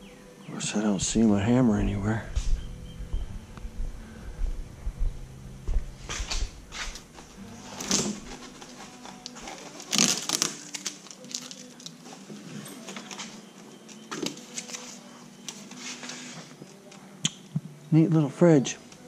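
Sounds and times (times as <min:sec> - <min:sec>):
plastic wrap crinkling: 0:06.1 - 0:13.4
tape pulled off with scrapes: 0:06.2 - 0:12.2.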